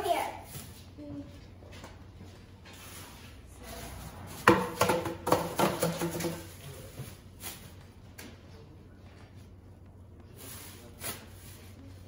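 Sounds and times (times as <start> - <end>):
hard objects clattering: 4.4 - 6.6.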